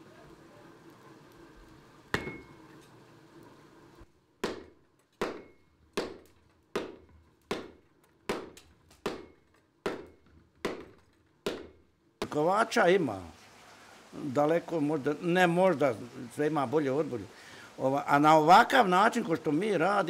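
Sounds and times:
trip hammer striking iron on anvil: 2.1s - 2.6s, 4.4s - 11.8s.

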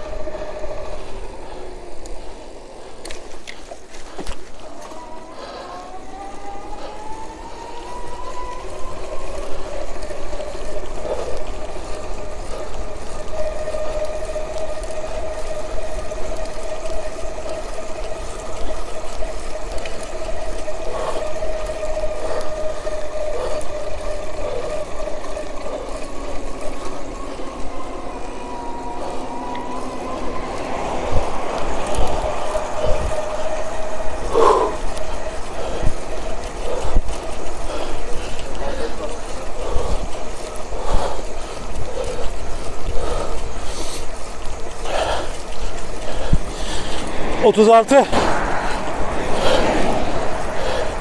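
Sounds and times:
electric motor whining: 0.0s - 40.9s
wind rumble on microphone: 27.9s - 38.5s, 45.7s - 51.0s.

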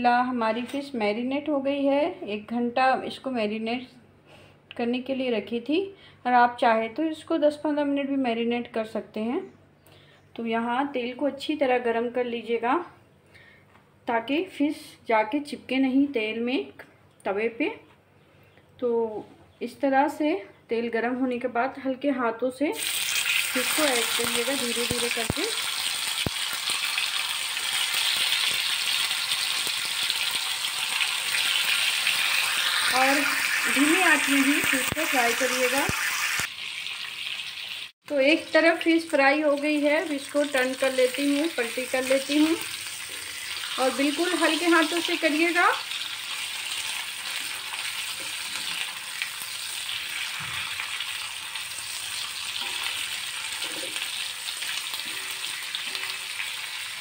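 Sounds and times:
fish sizzling in hot oil: 22.8s - 37.9s, 39.0s - 57.0s.

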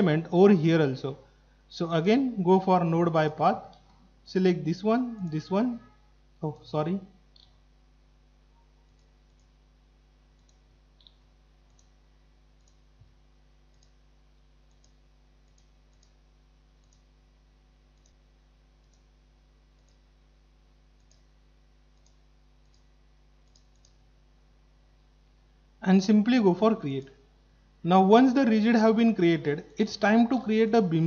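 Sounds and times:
faint computer mouse clicks: 7.3s - 7.6s, 8.9s - 9.6s, 10.4s - 12.0s, 12.6s - 12.8s, 13.7s - 14.0s, 14.7s - 16.2s, 16.8s - 17.1s, 18.0s - 18.2s, 18.8s - 19.1s, 19.8s - 20.0s, 21.0s - 21.3s, 21.9s - 24.0s.

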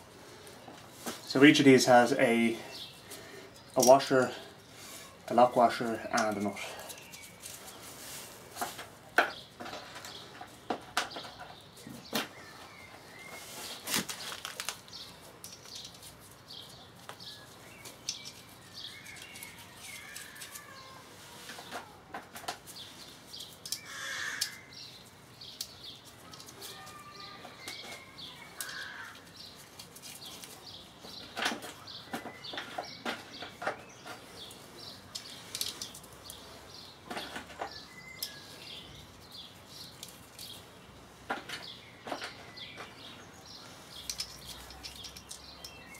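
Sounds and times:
birds chirping: 0.0s - 45.9s
metal washers and nuts clinking: 32.5s - 36.4s, 43.8s - 45.9s.

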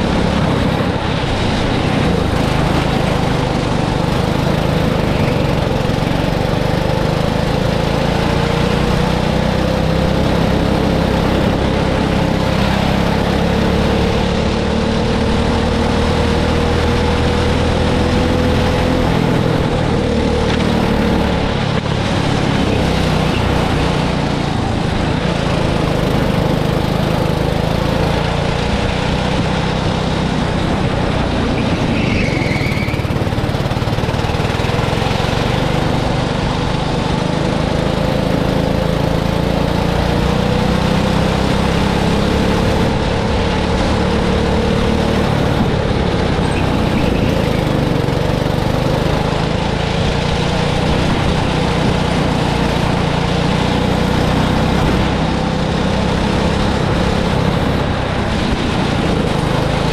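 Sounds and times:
broad rushing rumble: 0.0s - 59.9s
go-kart engine running: 0.0s - 59.9s
high-pitched squeal: 31.4s - 33.6s, 46.4s - 48.2s.

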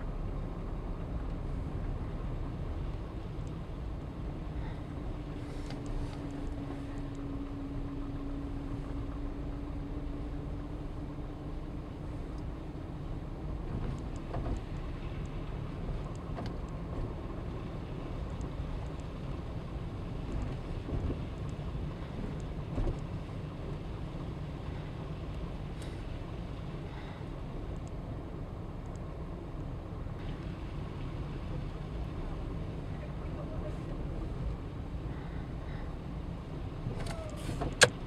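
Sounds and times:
car engine and road rumble: 0.0s - 38.0s
faint clicks: 2.9s - 3.6s, 16.0s - 16.8s, 18.2s - 19.1s, 27.7s - 28.0s.

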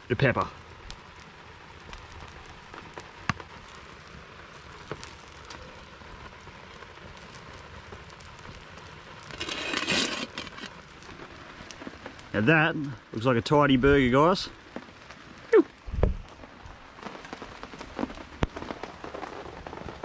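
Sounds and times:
campfire crackling and popping: 0.0s - 20.0s
light rain hissing: 0.0s - 20.0s.

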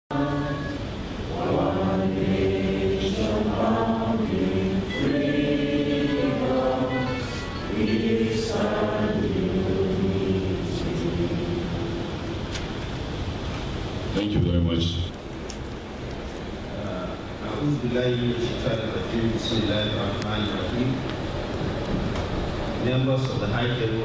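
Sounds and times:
crowd singing together: 0.1s - 12.5s.

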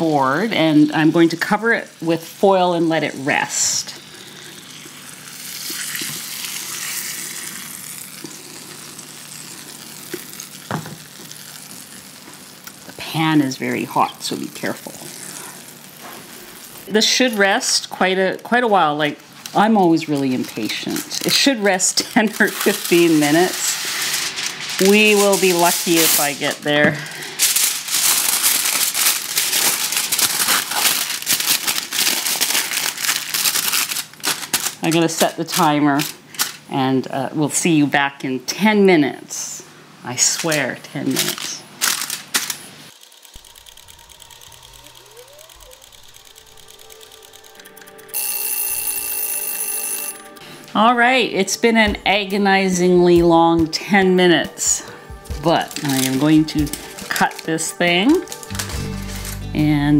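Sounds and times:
fat sizzling in a pan: 0.0s - 18.1s, 20.5s - 34.3s
aluminium foil crinkling: 0.4s - 36.7s, 40.3s - 48.2s, 54.5s - 59.6s.

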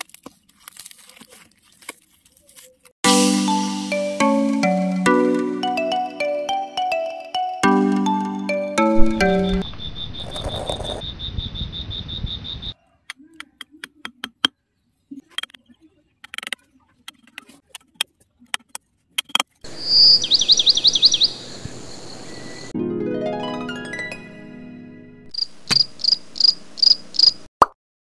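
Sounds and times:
rising and falling chirps: 5.7s - 12.8s, 19.7s - 22.8s.

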